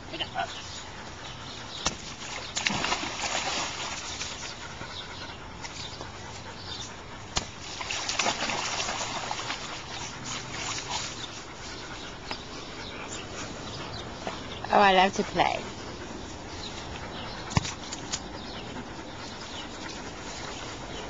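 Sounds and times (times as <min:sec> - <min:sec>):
water splashing in paddling pool: 0:01.8 - 0:04.7, 0:07.3 - 0:11.5.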